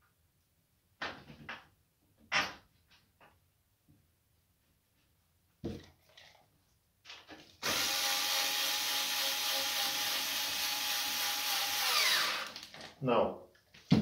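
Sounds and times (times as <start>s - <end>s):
electric screwdriver running: 7.6s - 12.8s.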